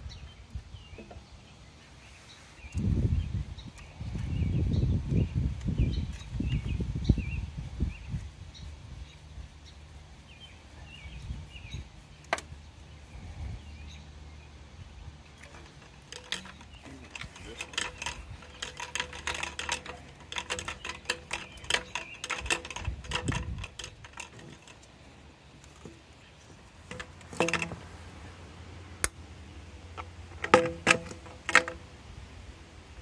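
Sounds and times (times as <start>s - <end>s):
plastic pipe fittings clicking: 15.4s - 24.9s, 26.8s - 27.8s, 30.0s - 31.8s.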